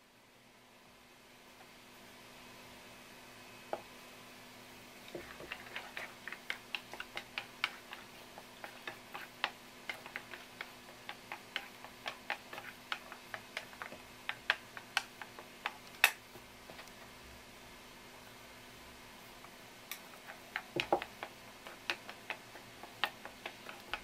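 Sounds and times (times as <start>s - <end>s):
chopsticks clicking on wooden bowl: 8.6s - 16.2s.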